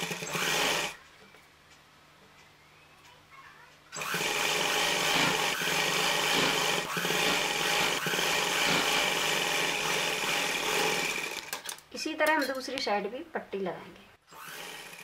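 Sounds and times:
sewing machine running: 0.0 - 1.0, 4.0 - 11.6, 14.3 - 15.0.

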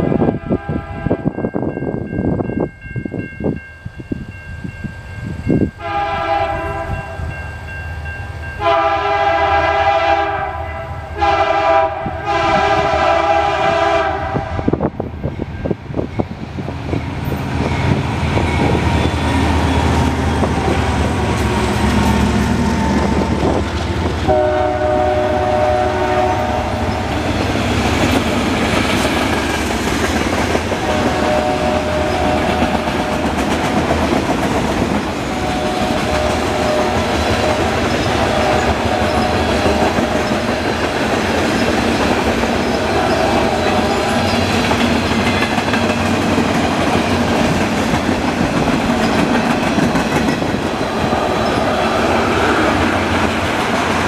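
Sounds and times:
train air horn blasts: 0.0 - 1.4, 5.8 - 7.4, 8.6 - 14.9, 24.2 - 27.1, 30.7 - 33.3, 35.2 - 40.3, 42.7 - 44.6
locomotives rumbling past: 12.3 - 54.0.

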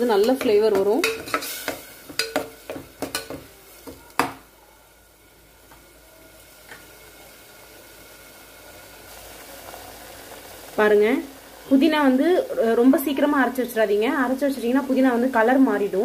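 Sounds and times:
food sizzling faintly: 0.0 - 16.0
metal spoon knocking in pot: 0.2 - 4.4.

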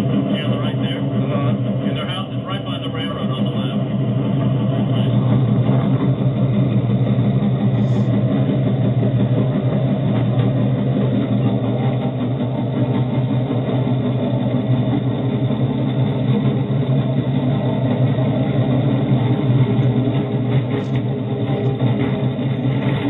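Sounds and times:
rail cart engine running: 0.0 - 23.0.

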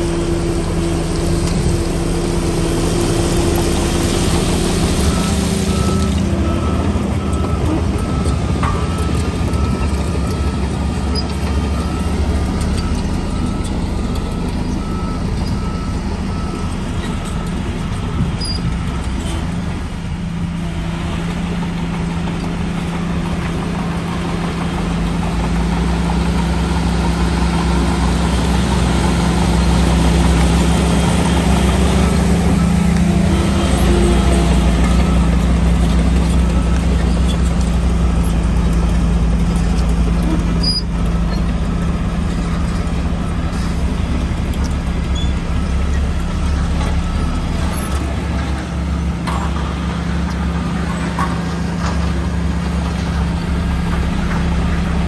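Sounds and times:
bulldozer diesel engine drone: 0.0 - 55.0.

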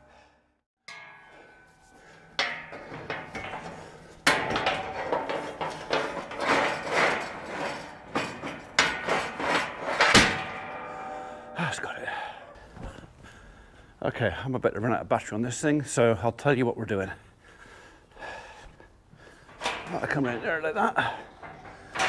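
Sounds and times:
sharp metal knocks: 0.9 - 12.9
metal gates clanking: 0.9 - 13.0, 19.3 - 22.0.

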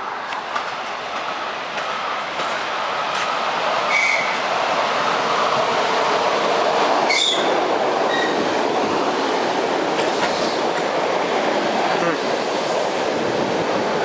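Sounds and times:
train wheels rushing on rails: 0.0 - 14.0
high-pitched wheel squeals: 7.1 - 7.5.

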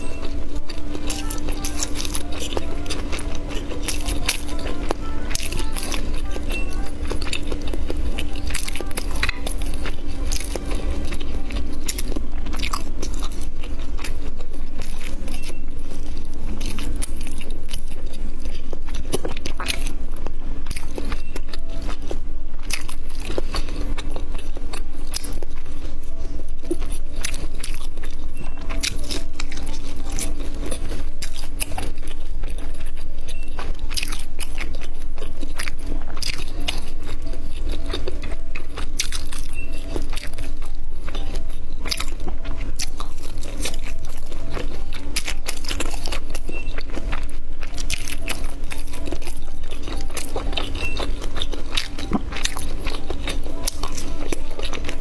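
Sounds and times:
crunchy chewing: 0.0 - 55.0.

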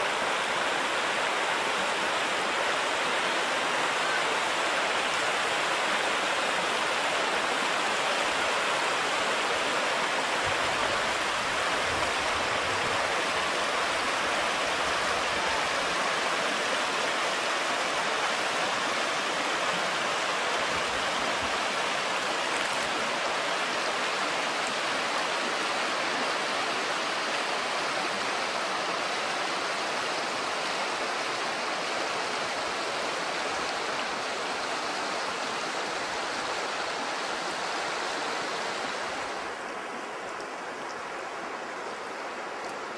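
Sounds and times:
river flowing over stones: 0.0 - 42.9.

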